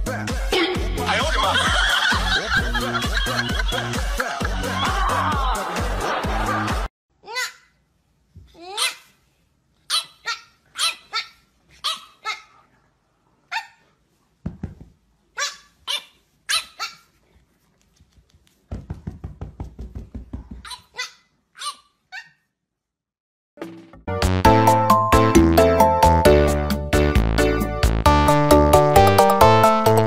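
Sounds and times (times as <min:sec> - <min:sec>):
puppy yapping: 0:09.9 - 0:12.6, 0:13.5 - 0:13.9, 0:15.4 - 0:17.2, 0:20.6 - 0:22.4.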